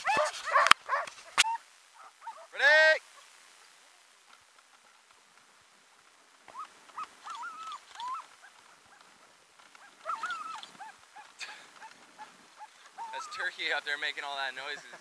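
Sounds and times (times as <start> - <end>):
dog yelping and whining: 0.0 - 2.5, 6.5 - 9.0, 9.8 - 13.5.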